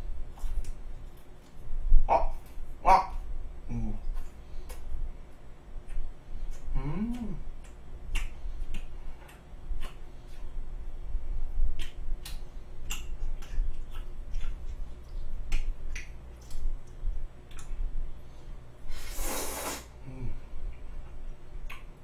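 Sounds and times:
chewing and lip smacks: 4.0 - 10.6, 11.6 - 18.0, 20.6 - 22.0
slurp of noodles: 19.0 - 19.9.

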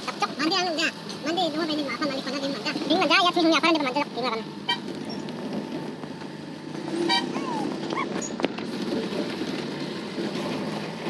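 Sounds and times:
engine and road rumble: 0.0 - 11.0
short horn toot: 7.0 - 7.5.

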